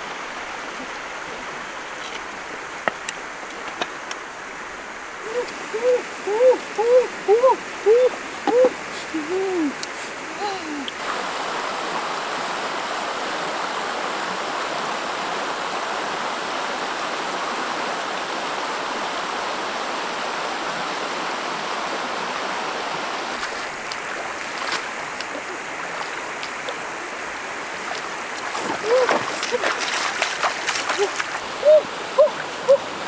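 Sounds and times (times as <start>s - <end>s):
river flowing over stones: 0.0s - 33.0s
small water splashes: 23.3s - 32.8s.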